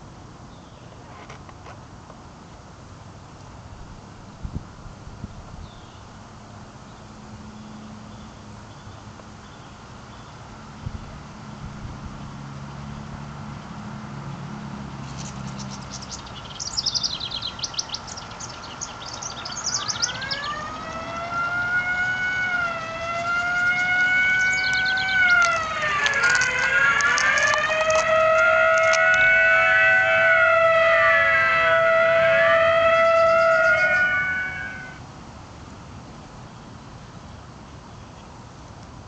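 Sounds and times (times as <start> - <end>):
birds chirping: 15.0 - 35.0
sirens wailing: 16.7 - 35.0.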